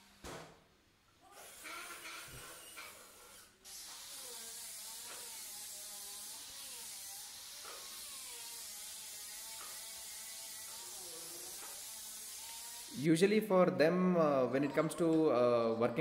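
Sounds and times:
electric drill boring into wood: 1.4 - 13.0.

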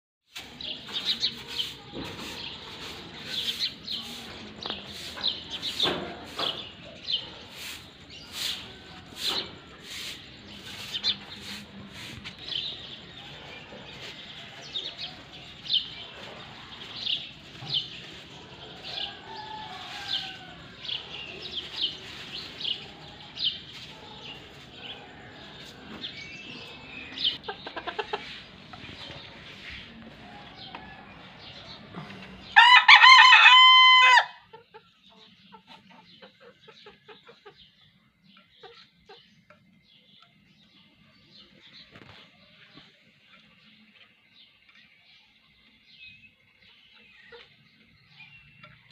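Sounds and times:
rooster crowing: 18.8 - 21.0, 32.5 - 34.4.

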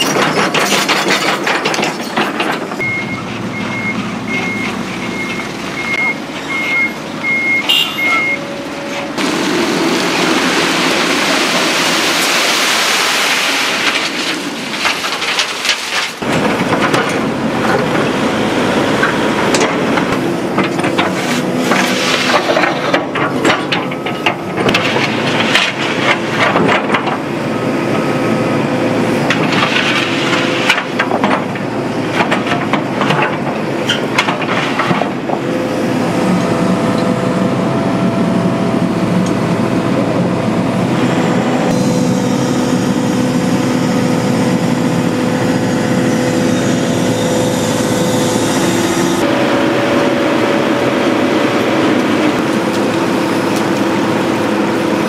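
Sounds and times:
knocks and clatters: 0.0 - 2.8, 13.8 - 18.1, 19.0 - 27.2, 29.3 - 35.5
machinery engine running: 35.4 - 55.0.

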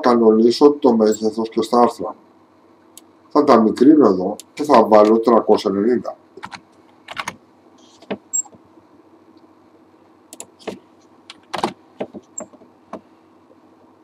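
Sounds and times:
steady low hum: 0.0 - 14.0
keyboard keystrokes: 6.4 - 7.4, 10.4 - 12.6
mouse clicks: 10.3 - 10.5.

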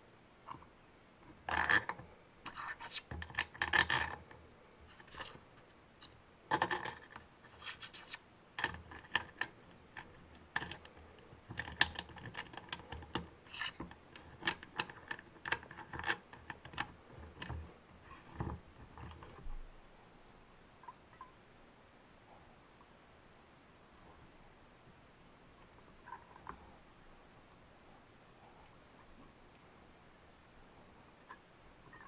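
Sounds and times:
small clicks and scrapes: 0.4 - 19.6, 25.7 - 26.8.

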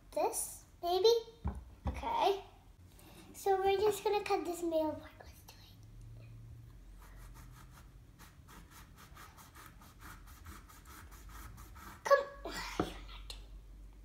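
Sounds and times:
knife sawing through fruit: 8.2 - 12.1.

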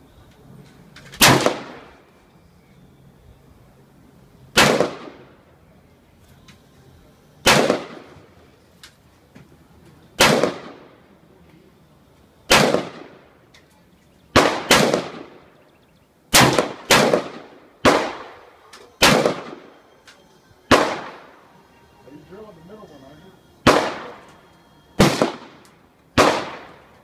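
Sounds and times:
gunshots with echo: 1.2 - 1.9, 4.6 - 5.3, 7.4 - 8.1, 10.2 - 10.9, 12.5 - 13.2, 14.3 - 15.5, 16.3 - 19.7, 20.7 - 21.4, 23.6 - 24.3, 25.0 - 27.0.

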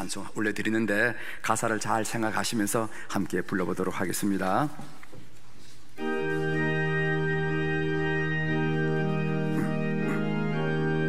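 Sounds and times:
organ playing sustained chords: 6.0 - 11.0.

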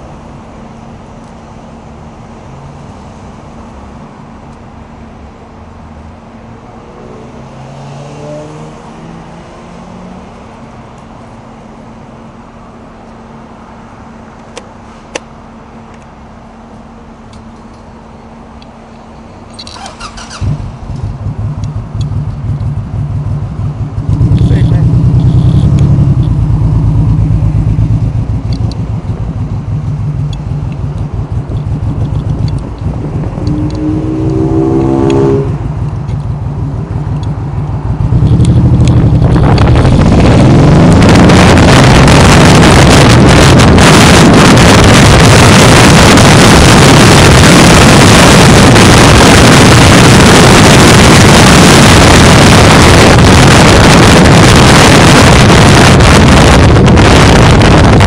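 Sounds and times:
motorcycle engine: 19.5 - 58.0
wind buffeting microphone: 31.2 - 58.0
rising tone: 31.3 - 36.9.

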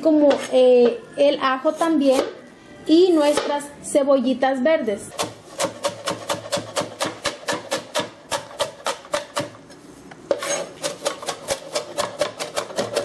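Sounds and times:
knife chopping on cutting board: 5.2 - 9.6, 10.4 - 13.0.

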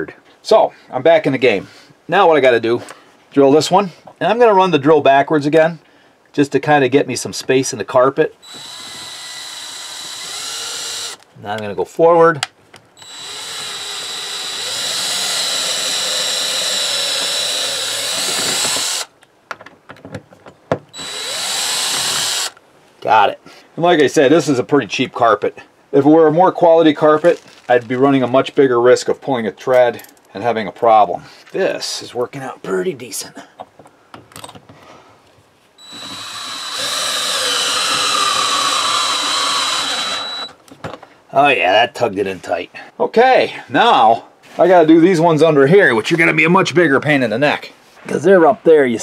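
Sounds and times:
drill whining: 8.4 - 11.2, 13.0 - 19.1, 21.0 - 22.6, 35.8 - 40.6.

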